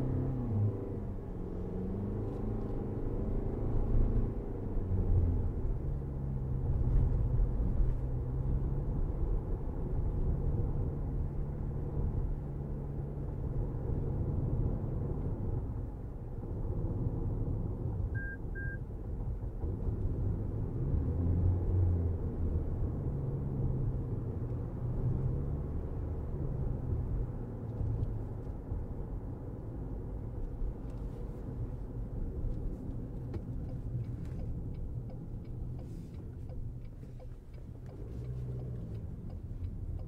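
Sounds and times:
car engine: 0.0s - 40.0s
road rumble: 0.0s - 40.0s
short high beeps: 18.2s - 18.8s.

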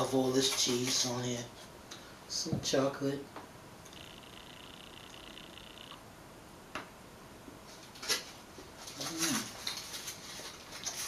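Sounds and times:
mouth clicks: 3.8s - 6.0s.

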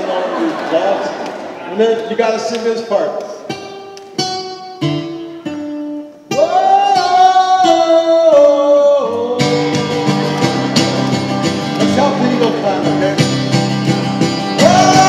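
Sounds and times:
acoustic guitar strumming: 3.4s - 15.0s
man singing: 6.3s - 10.2s, 14.5s - 15.0s.

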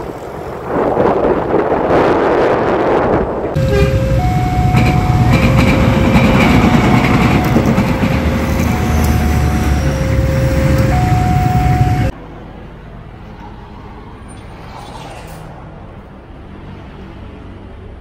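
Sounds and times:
passenger train rumbling past: 0.0s - 14.4s
two-tone crossing alarm: 3.6s - 12.2s.

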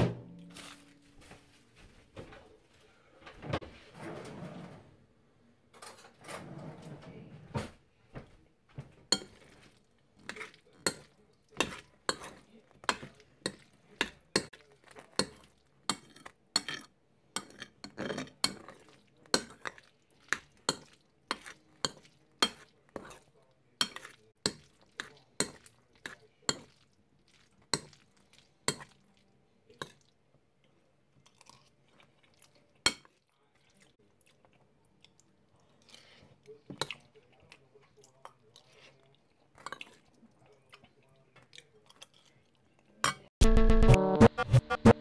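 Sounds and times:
fork clinking and scraping a dish: 9.1s - 26.8s.

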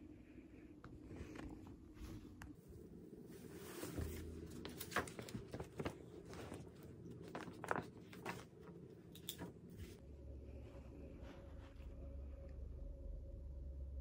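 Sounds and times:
paper and pen handling taps: 4.0s - 9.9s.

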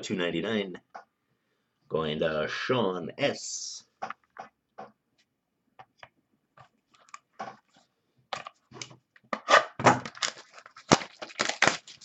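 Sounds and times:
packaging crinkling and scraping: 8.4s - 12.0s.

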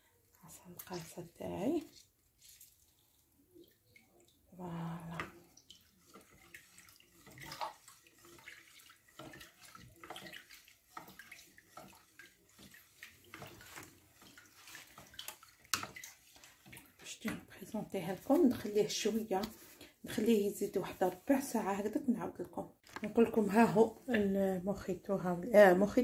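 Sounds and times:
juice dripping and trickling: 0.1s - 17.6s
small splashes from stirring: 0.1s - 21.3s.

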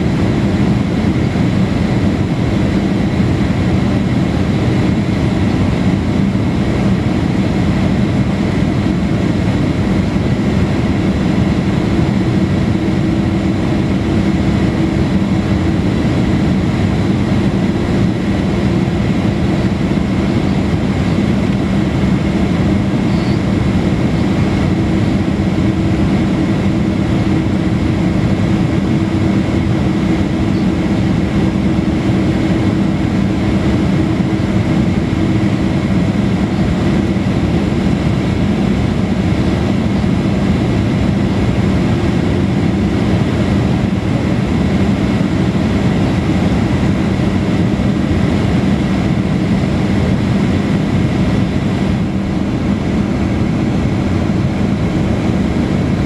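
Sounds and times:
jet engines and airflow in cabin: 0.0s - 56.0s
steady humming tones: 0.0s - 56.0s.

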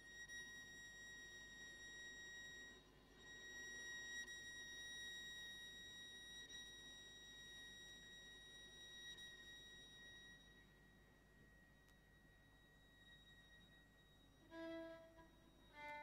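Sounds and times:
viola sustained high note: 12.8s - 16.0s.

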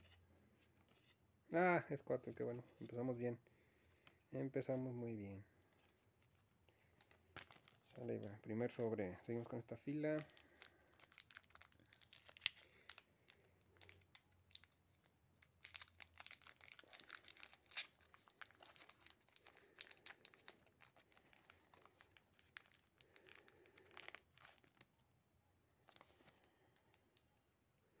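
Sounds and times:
foil wrapper crinkling and tearing: 6.9s - 8.8s, 9.8s - 25.0s.

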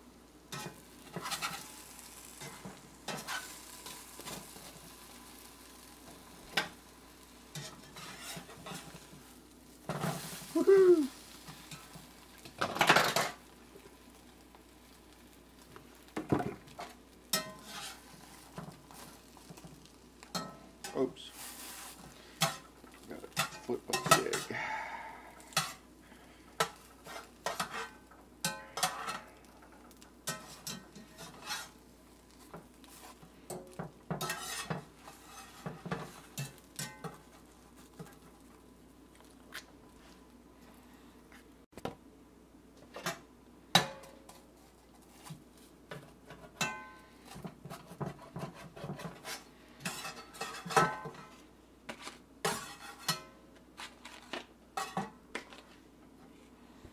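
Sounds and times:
metal spatula scraping a skillet: 0.5s - 10.5s, 11.2s - 14.2s, 16.7s - 38.3s, 45.9s - 55.2s.

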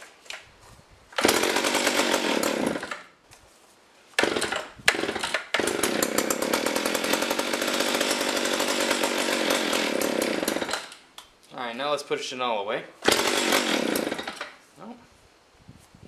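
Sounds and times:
chainsaw starting and running: 1.1s - 3.2s, 4.2s - 11.0s, 13.0s - 14.6s.

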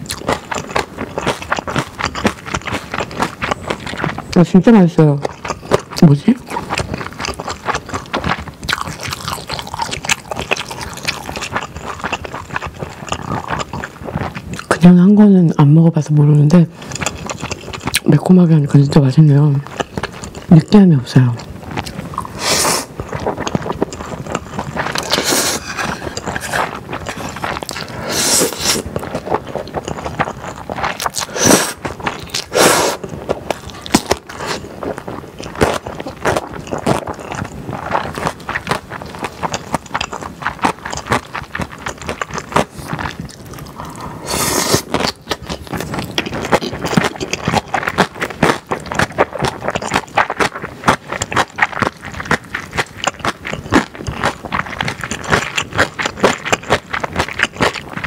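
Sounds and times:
close-miked chewing: 0.0s - 58.0s
slurping noodles: 21.4s - 58.0s.

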